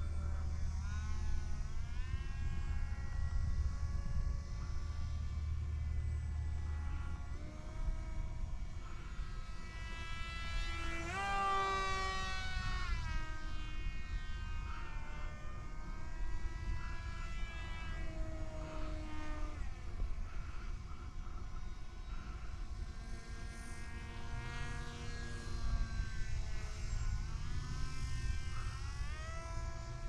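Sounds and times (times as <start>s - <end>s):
model plane motor whining: 0.0s - 30.0s.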